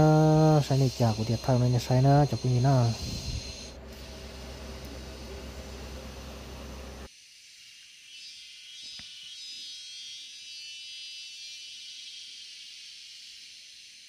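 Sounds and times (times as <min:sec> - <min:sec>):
insects buzzing: 0:00.0 - 0:14.0
low rumble on microphone: 0:02.4 - 0:07.0.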